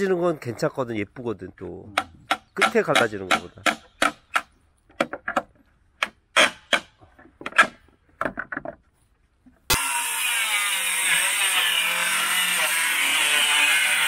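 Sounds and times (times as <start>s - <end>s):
knocks on wooden boards: 1.9s - 8.8s.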